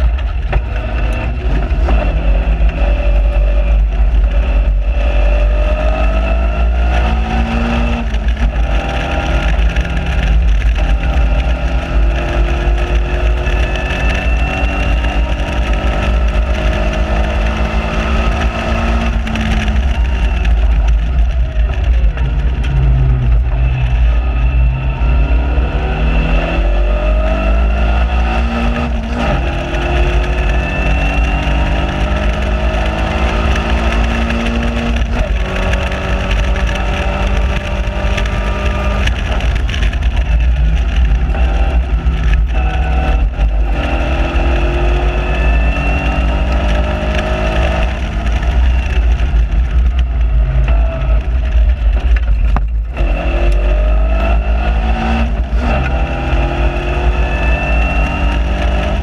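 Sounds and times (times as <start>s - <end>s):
car engine accelerating: 0.0s - 59.0s.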